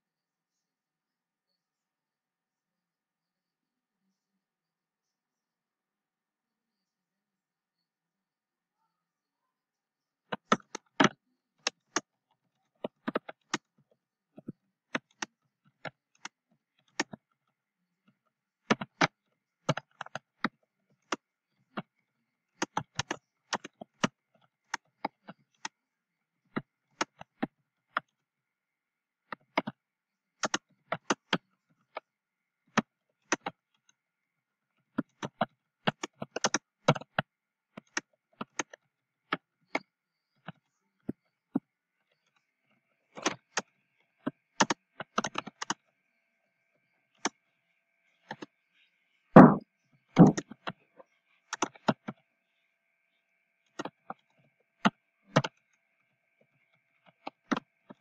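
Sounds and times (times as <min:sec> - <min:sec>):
typing on computer keyboard: 0:10.3 - 0:12.1, 0:12.8 - 0:13.7, 0:18.7 - 0:21.2, 0:22.6 - 0:25.8, 0:30.4 - 0:32.0, 0:32.7 - 0:33.6, 0:35.0 - 0:39.8, 0:44.6 - 0:45.8, 0:51.5 - 0:52.2, 0:54.9 - 0:55.6.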